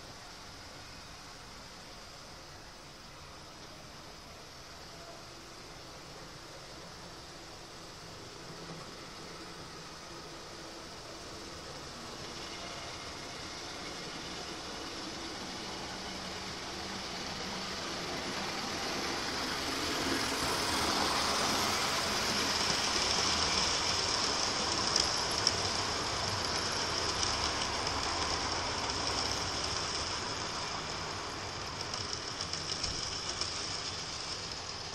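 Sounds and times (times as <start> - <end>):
wheels rumbling on track: 6.8 - 34.9
model train motor whining: 8.3 - 34.9
sharp track clicks: 31.6 - 34.8.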